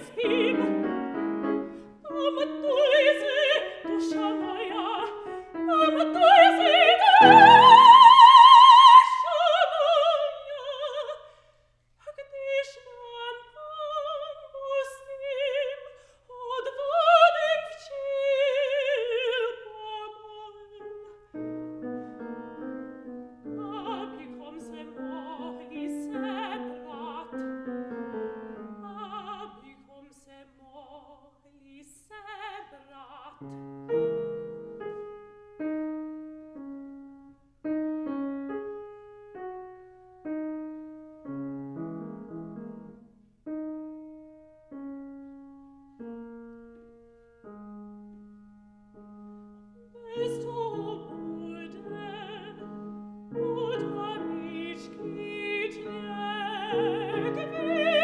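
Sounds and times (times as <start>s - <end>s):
operatic soprano singing: 0.0s - 11.3s, 12.0s - 21.2s, 23.4s - 33.6s, 49.9s - 58.0s
grand piano: 0.0s - 11.4s, 12.1s - 58.0s.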